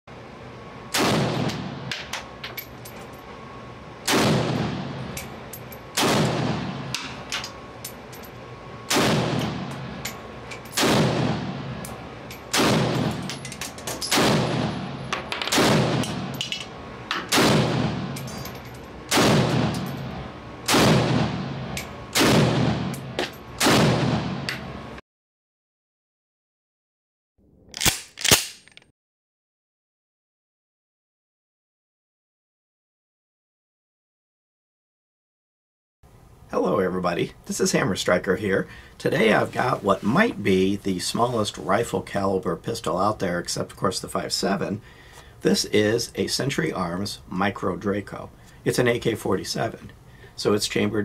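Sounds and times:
gunshots echoing indoors: 0.9 - 1.9, 4.1 - 5.0, 5.9 - 7.1, 8.9 - 9.9, 10.8 - 11.7, 12.5 - 13.3, 14.1 - 16.4, 17.3 - 18.2, 19.1 - 19.9, 20.6 - 24.5.

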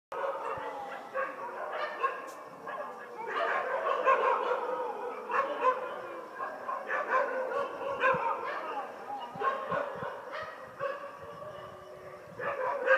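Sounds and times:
dogs barking and yelping: 0.2 - 12.9.

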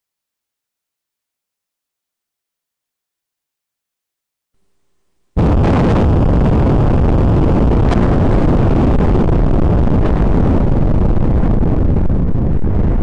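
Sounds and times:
deep demolition rumble: 5.4 - 13.0.

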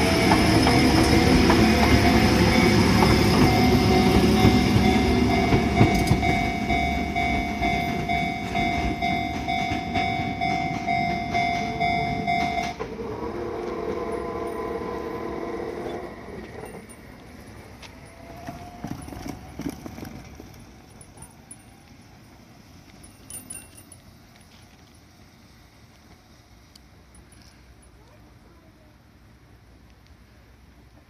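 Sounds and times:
level crossing warning bell: 0.0 - 19.4
electric train rumbling: 0.0 - 31.0.

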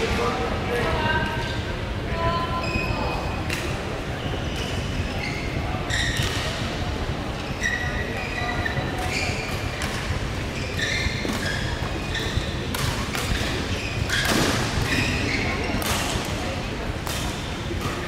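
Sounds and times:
low hum of large hall: 0.0 - 18.0
shoes squeaking on court: 4.2 - 6.6, 7.3 - 15.9
racket hitting shuttlecock: 12.7 - 15.0, 15.8 - 16.3.

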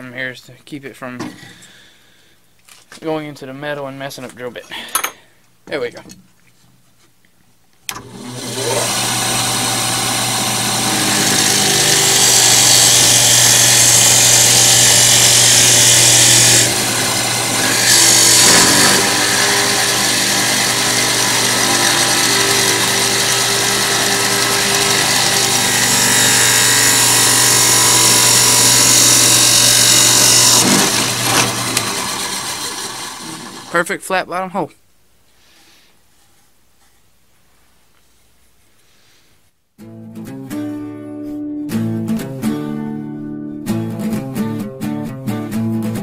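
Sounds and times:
drill press motor hum: 7.9 - 33.7
drill bit cutting wood: 7.9 - 33.8.

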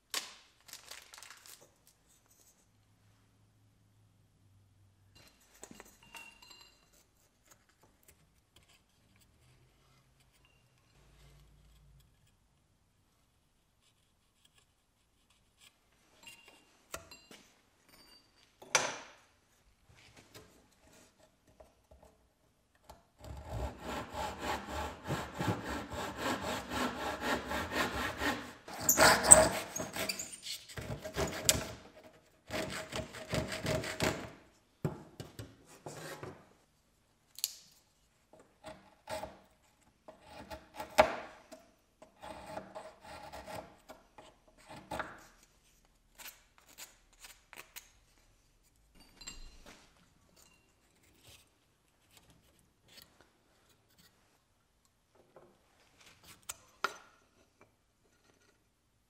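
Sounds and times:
saw cutting wood: 23.3 - 30.3.

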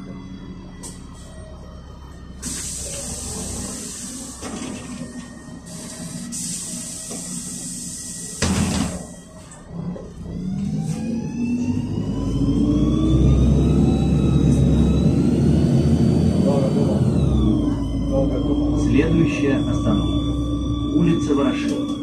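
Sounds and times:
bus engine idling: 0.0 - 22.0
compressed air hissing: 2.4 - 4.4, 5.7 - 8.4.

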